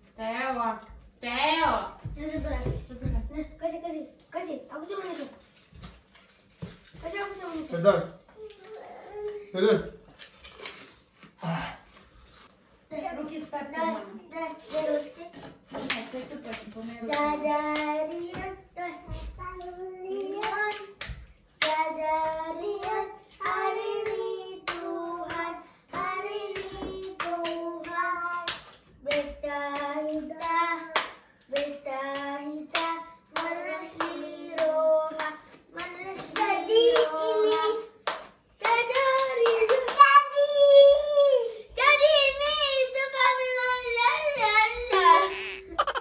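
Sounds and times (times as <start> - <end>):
child singing: 17.0 - 21.0, 21.6 - 37.9
hand claps: 22.8 - 40.1.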